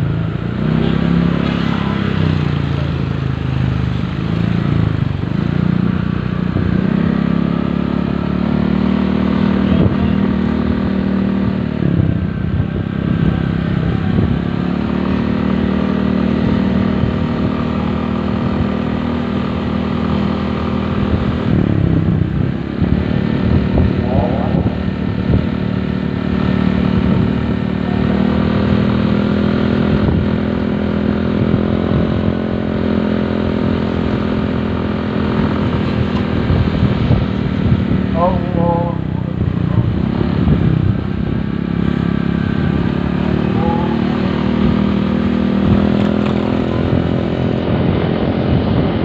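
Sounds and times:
motorcycle engine running: 0.0s - 49.0s.

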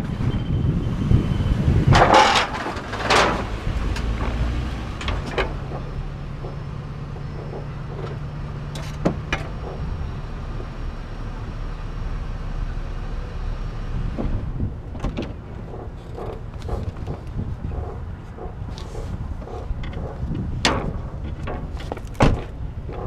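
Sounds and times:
vehicle engine idling: 2.8s - 23.0s
sharp knocks and clicks: 5.0s - 9.9s, 14.2s - 23.0s.

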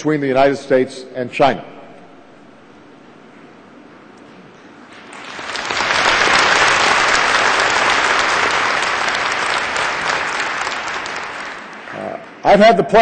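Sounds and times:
audience applauding: 5.0s - 12.4s.

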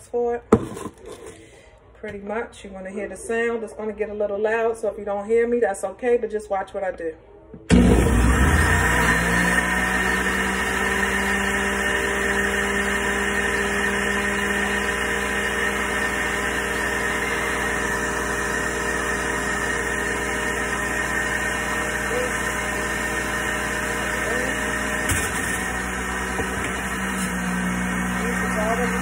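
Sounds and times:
juicer motor running: 7.7s - 29.0s.

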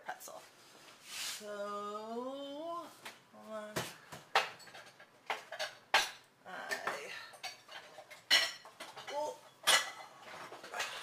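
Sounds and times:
dishes and bowls clinking: 4.3s - 11.0s.

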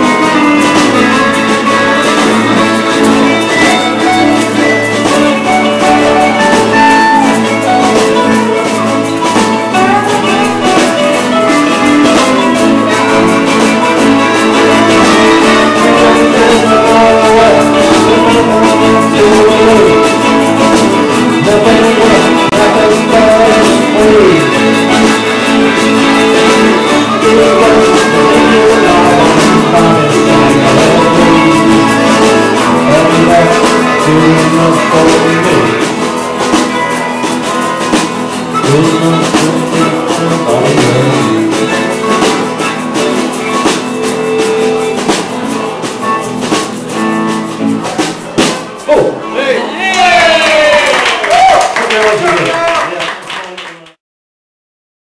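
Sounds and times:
strummed acoustic guitar: 0.0s - 50.4s
electric guitar lead lines: 0.0s - 50.6s.

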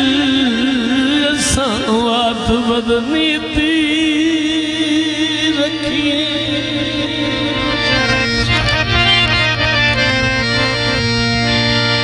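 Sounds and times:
man singing: 0.0s - 8.6s
harmonium chords: 0.0s - 12.0s.

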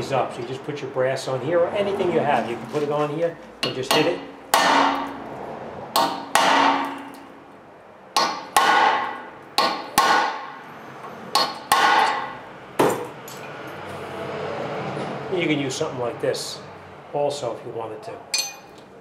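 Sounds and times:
hammer striking metal drift: 3.6s - 5.2s, 5.9s - 7.3s, 8.2s - 10.6s, 11.3s - 13.1s.

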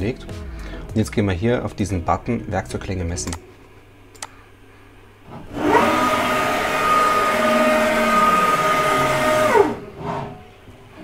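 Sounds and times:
machine axis drive whine: 5.3s - 11.0s.

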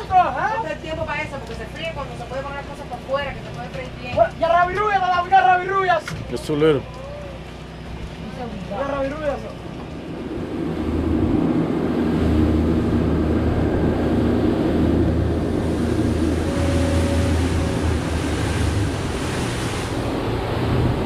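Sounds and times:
outboard motors running: 0.0s - 21.0s
water rushing past hull: 0.0s - 21.0s
wind buffeting microphone: 9.2s - 21.0s.

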